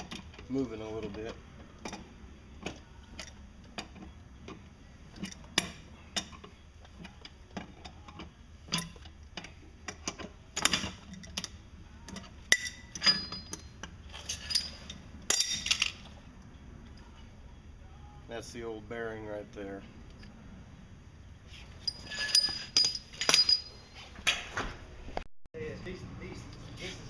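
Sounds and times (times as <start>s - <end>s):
metallic clatter: 0.0s - 16.2s, 21.7s - 24.3s.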